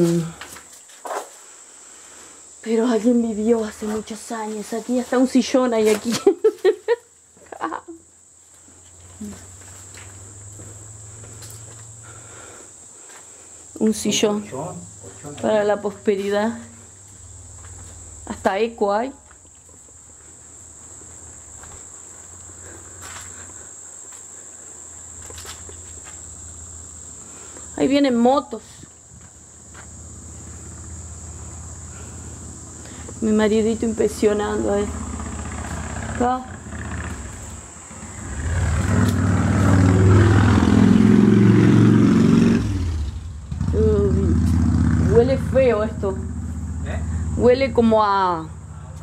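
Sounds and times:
insects chirring: 0.0s - 49.0s
motorcycle engines passing: 9.0s - 12.3s, 29.4s - 49.0s.

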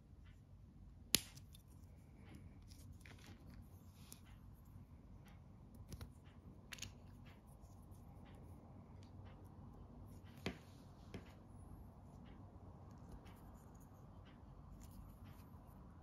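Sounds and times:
low steady hum: 0.0s - 16.0s
sharp plastic snap: 1.1s - 1.6s.

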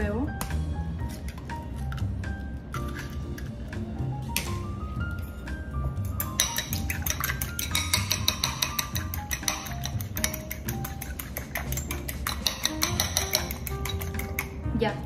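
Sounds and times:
background music: 0.0s - 15.0s
fork clinking against glass bowl: 6.1s - 14.6s.

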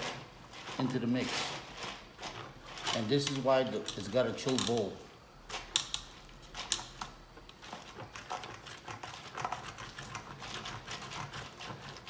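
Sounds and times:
butter rasping on metal grater: 7.6s - 12.0s.

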